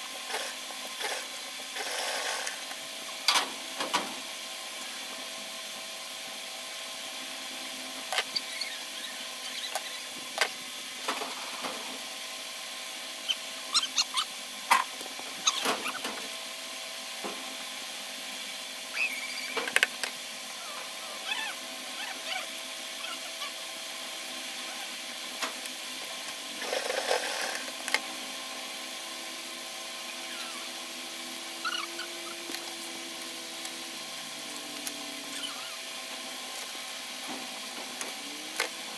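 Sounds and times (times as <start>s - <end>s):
steady background hum: 0.0s - 38.9s.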